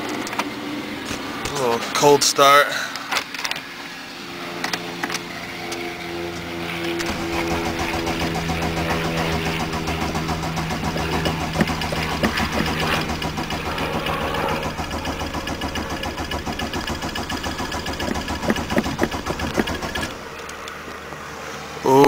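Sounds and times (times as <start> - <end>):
diesel engine clattering: 6.8 - 20.7.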